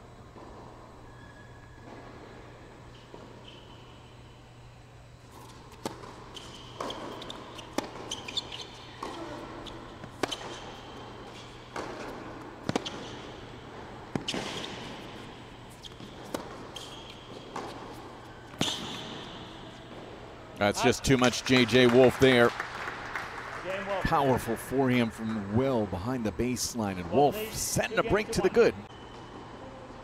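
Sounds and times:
tennis ball bouncing: 5.4 - 20.3
racquet striking tennis ball: 5.7 - 20.2.

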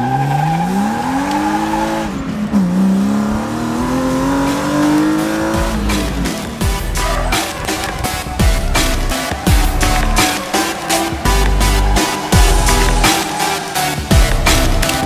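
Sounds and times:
car engine accelerating: 0.0 - 15.0
electronic music with steady beat: 0.7 - 15.0.

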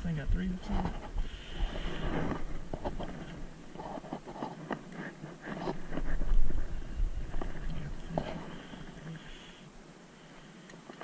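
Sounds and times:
handling clicks and scrapes: 0.7 - 6.7.

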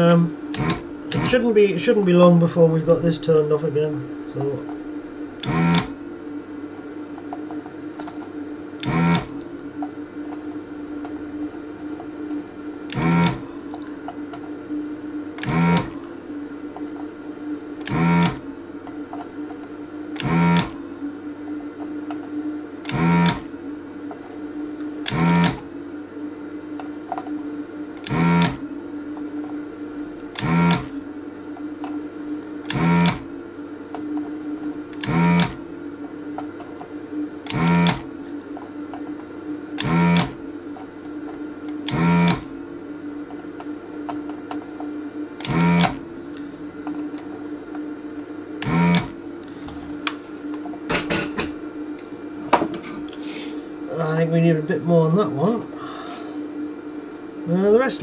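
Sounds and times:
vacuum pump bursts: 0.0 - 6.1, 8.0 - 9.4, 12.0 - 16.2, 17.8 - 18.6, 19.9 - 20.9, 22.8 - 23.7, 24.8 - 25.8, 28.0 - 28.8, 30.3 - 31.8, 32.5 - 36.4, 37.3 - 38.3, 39.7 - 42.7, 45.4 - 46.8, 48.5 - 51.8
desoldering station humming: 0.0 - 58.0.

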